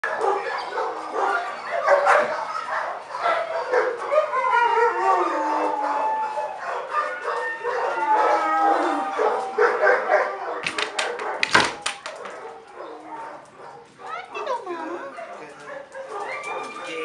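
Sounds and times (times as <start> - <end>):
dogs barking and yipping: 0.0 - 17.0
dog howling: 0.1 - 11.4, 15.9 - 17.0.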